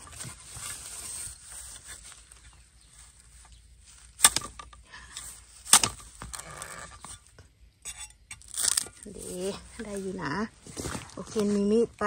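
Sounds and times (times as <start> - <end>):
spade chopping into bamboo: 4.1 - 7.2.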